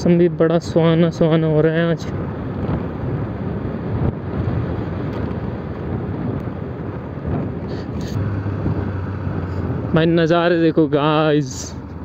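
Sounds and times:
wind buffeting microphone: 0.0 - 12.0
motorcycle engine and tyres: 2.4 - 12.0.

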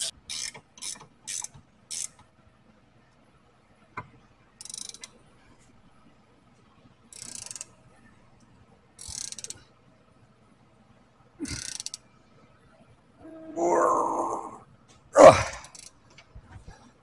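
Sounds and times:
ratchet wrench clicking: 0.0 - 2.2, 4.6 - 5.1, 7.1 - 7.7, 9.0 - 9.6, 11.5 - 12.0, 15.6 - 16.0.

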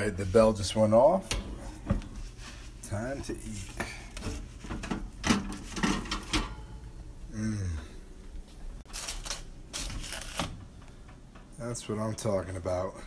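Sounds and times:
brief vocal sound: 7.3 - 8.0.

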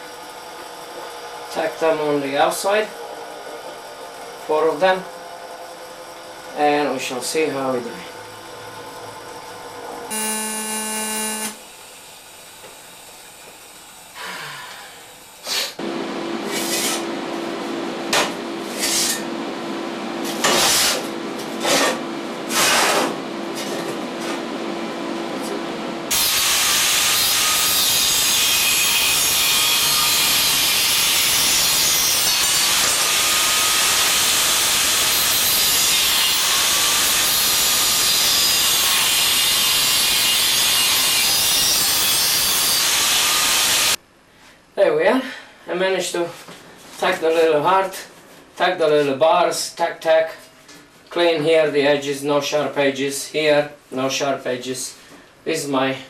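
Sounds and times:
steady hum: 8.2 - 12.7, 15.8 - 26.1
short loud bursts: 10.1 - 11.6
angle grinder grinding steel: 10.1 - 11.7, 26.1 - 44.0.

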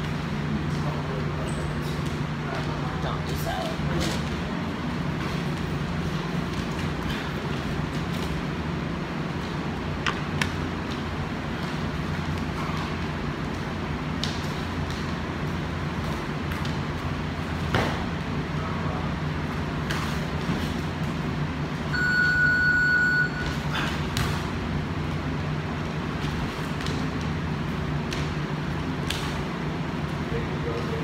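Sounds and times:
steady hum: 0.0 - 31.0
knocks and footfalls on a mat: 9.4 - 18.3, 23.5 - 29.5
electronic beep: 22.0 - 23.4.

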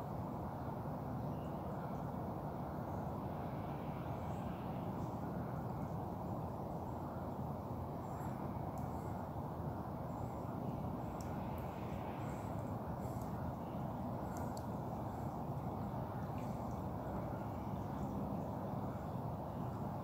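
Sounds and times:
faint bird chirps: 8.0 - 20.0.

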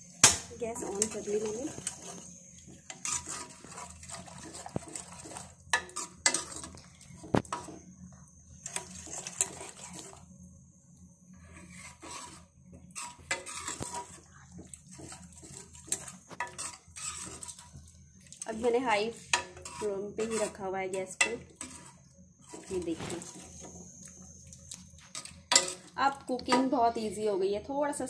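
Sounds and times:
ladle stirring thick stew: 0.8 - 7.9, 8.6 - 10.3, 11.4 - 23.9.

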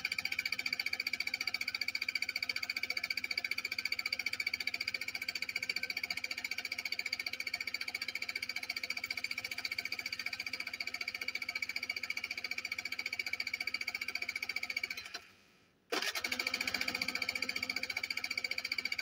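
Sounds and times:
scooter engine cranking: 15.9 - 19.0.

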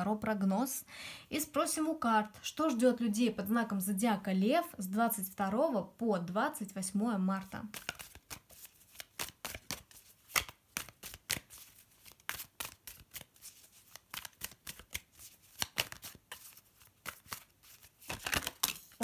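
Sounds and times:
cards being shuffled: 7.6 - 19.0.

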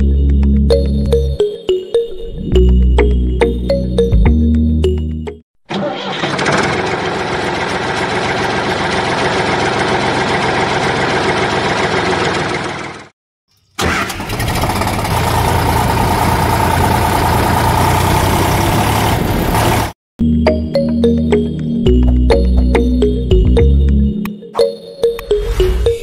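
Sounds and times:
tractor engine running: 5.7 - 13.1, 13.8 - 20.0.

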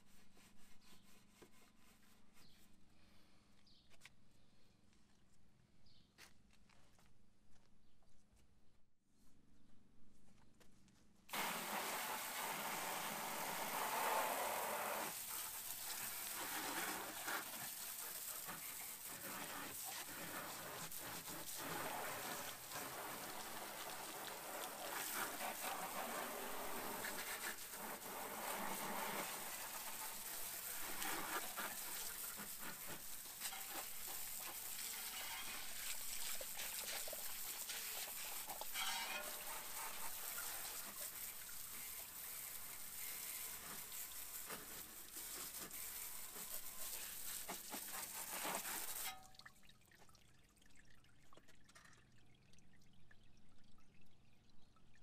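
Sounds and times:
water spraying hiss: 11.3 - 49.2.

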